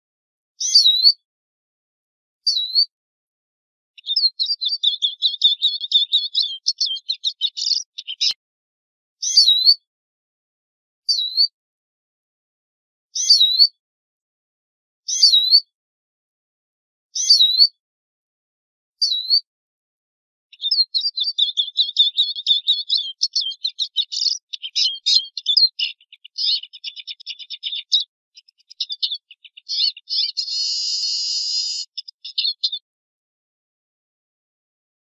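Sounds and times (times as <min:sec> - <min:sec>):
bird twittering song: 0:00.6 - 0:01.2, 0:02.4 - 0:02.9, 0:04.0 - 0:08.4, 0:09.2 - 0:09.8, 0:11.1 - 0:11.6, 0:13.2 - 0:13.8, 0:15.1 - 0:15.7, 0:17.2 - 0:17.8, 0:19.0 - 0:19.5, 0:20.5 - 0:32.8
bird whistled call notes: 0:00.6 - 0:01.2, 0:02.5 - 0:02.9, 0:09.2 - 0:09.8, 0:13.2 - 0:13.8, 0:15.1 - 0:15.7, 0:17.2 - 0:17.8, 0:28.8 - 0:32.8.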